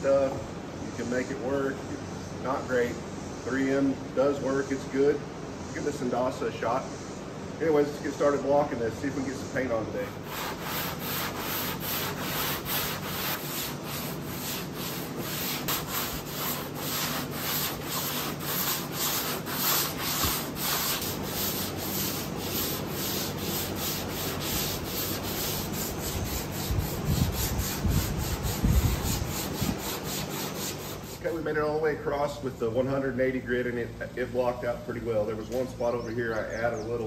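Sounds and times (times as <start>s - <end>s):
sanding block rasping strokes: 10.0s - 31.4s.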